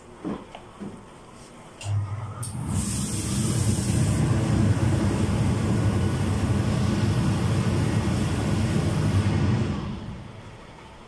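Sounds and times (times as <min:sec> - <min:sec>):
suction blower motor humming: 0:01.9 - 0:10.5.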